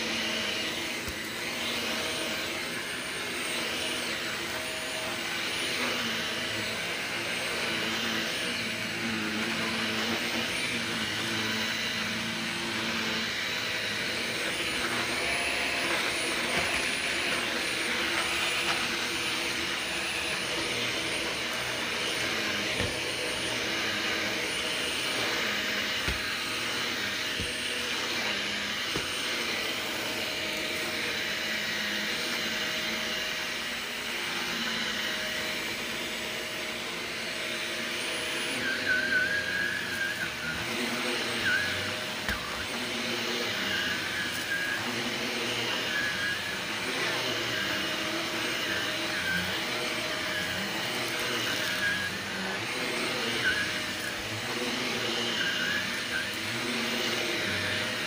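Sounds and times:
stick vacuum motor whine: 0:00.0 - 0:58.0.

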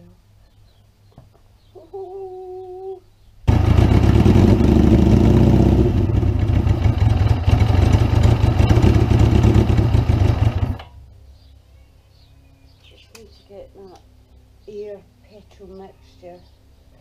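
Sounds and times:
motorcycle engine running: 0:03.5 - 0:10.9.

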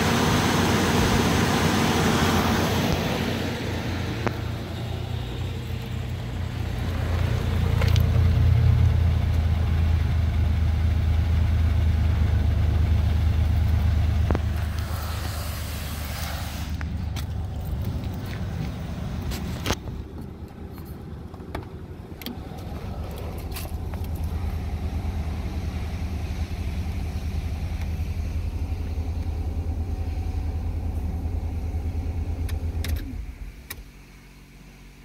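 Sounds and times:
car engine idling: 0:00.0 - 0:35.0.

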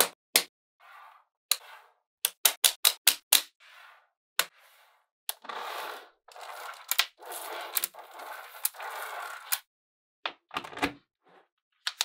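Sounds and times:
magnetic balls snapping together: 0:02.3 - 0:03.5
magnetic balls rattling and scraping: 0:03.5 - 0:09.7.

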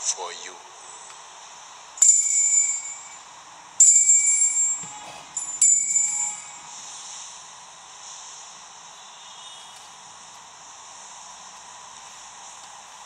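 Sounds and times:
altar bell ringing: 0:02.0 - 0:06.9.

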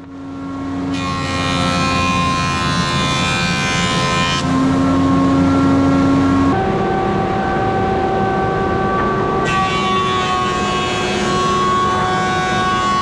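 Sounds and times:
jointer planing a board: 0:00.7 - 0:06.4, 0:09.4 - 0:13.0.

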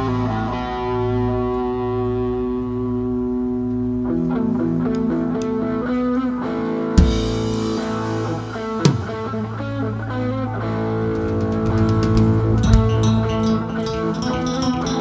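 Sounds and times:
rock band playing: 0:00.0 - 0:15.0
drum hit with cymbal crash: 0:07.0 - 0:09.3.

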